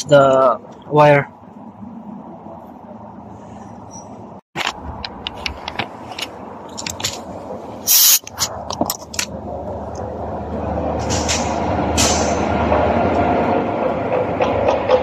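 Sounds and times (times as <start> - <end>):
loud hiss: 7.8 - 8.3.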